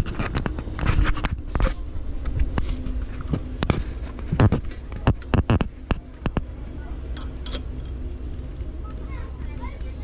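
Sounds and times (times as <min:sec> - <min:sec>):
low train rumble: 0:00.0 - 0:10.0.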